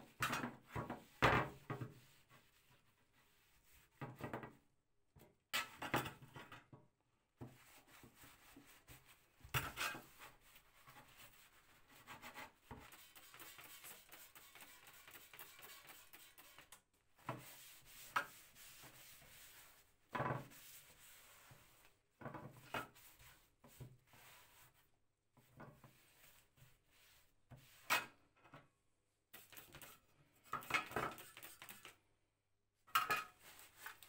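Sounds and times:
cloth wiping sheet metal: 9.9s - 16.7s, 17.3s - 21.8s.

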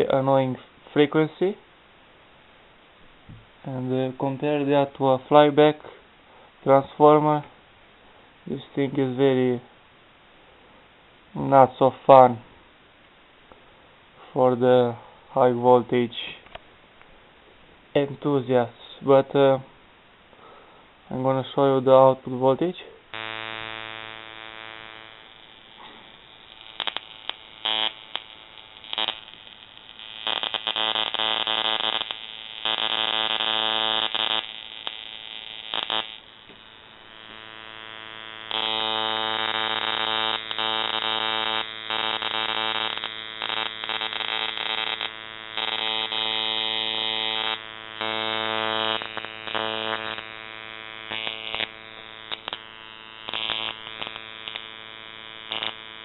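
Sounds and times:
high-voltage spark arcing: 23.1s - 56.0s
ignition coil buzzing: 23.1s - 56.0s.

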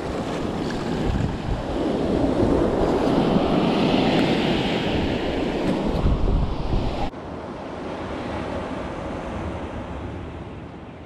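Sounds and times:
wave washing in: 0.0s - 7.1s
wind on microphone: 0.0s - 7.1s.

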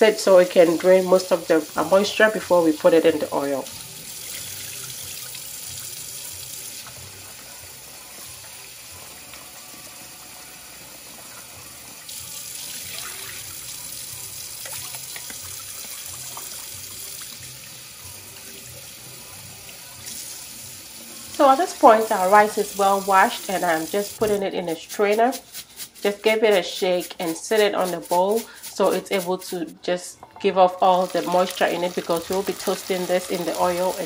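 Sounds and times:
rice rinsed in a bowl: 0.2s - 34.0s
faucet running into sink: 0.4s - 24.4s, 30.2s - 34.0s
water splashing into sink: 14.4s - 17.6s.

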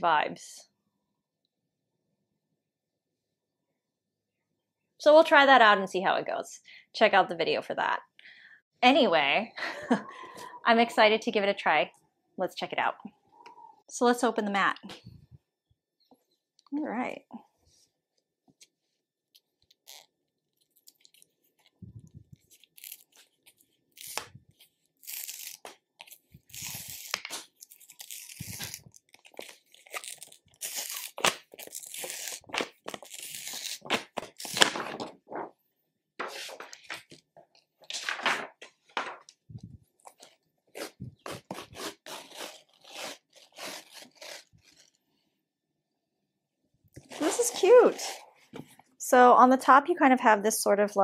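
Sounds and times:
paper tearing and crinkling: 22.4s - 35.5s, 36.2s - 37.2s, 37.8s - 38.7s, 40.1s - 45.0s, 47.0s - 48.2s.

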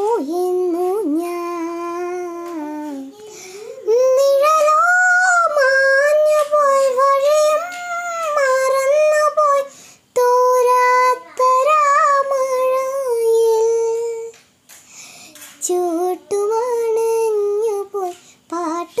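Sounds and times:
girl singing unaccompanied: 0.0s - 14.4s, 15.1s - 19.0s
girl breathing: 3.1s - 3.9s, 9.6s - 10.1s, 14.8s - 15.5s, 18.2s - 18.5s.

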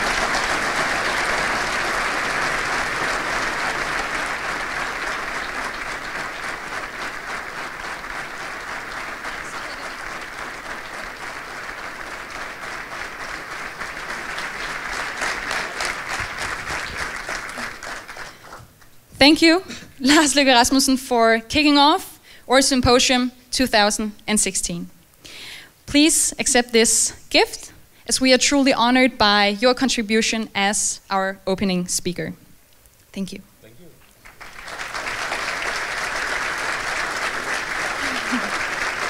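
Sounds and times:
large audience applauding: 0.0s - 18.7s, 34.2s - 39.0s.

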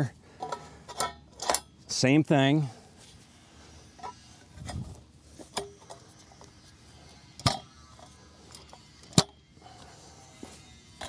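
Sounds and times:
metal tubes knocking and clinking: 0.0s - 1.8s.

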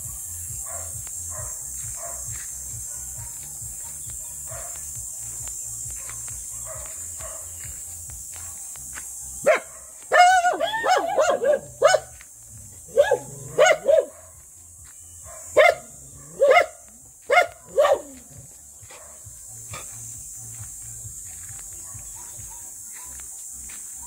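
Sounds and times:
dog barking: 0.2s - 5.0s, 6.0s - 7.6s, 9.4s - 12.2s, 12.8s - 14.5s, 15.2s - 20.1s, 21.7s - 23.2s.

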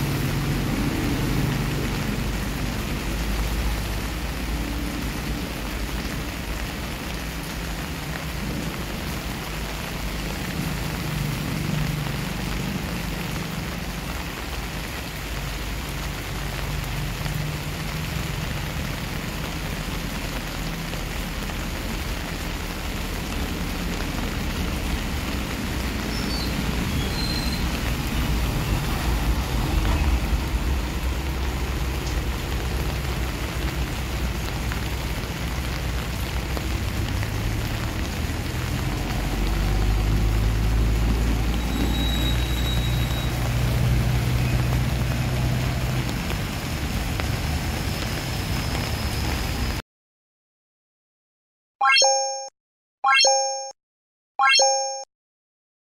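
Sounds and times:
rain on pavement and foliage: 0.0s - 49.8s.

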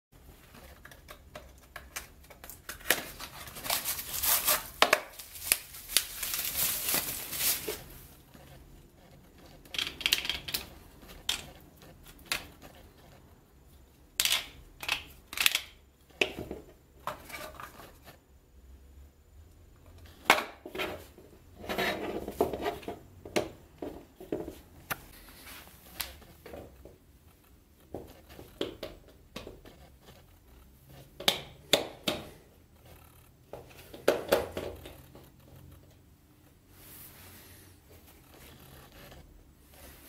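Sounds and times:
plastic wrapping crinkling: 1.6s - 8.3s.

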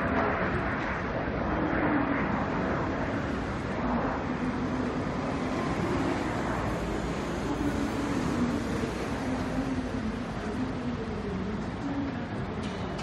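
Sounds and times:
jet engines roaring: 0.0s - 13.0s.

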